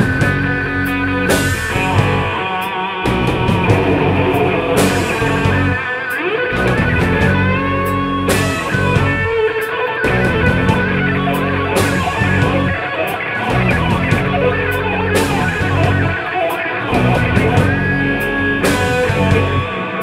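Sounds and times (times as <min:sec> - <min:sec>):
bass guitar: 0:00.0 - 0:02.4, 0:03.2 - 0:09.3, 0:10.1 - 0:12.8, 0:13.4 - 0:16.2, 0:16.9 - 0:19.6
electric guitar: 0:00.0 - 0:20.0
drum kit: 0:03.4 - 0:06.2
cymbal crashes: 0:03.5 - 0:06.7.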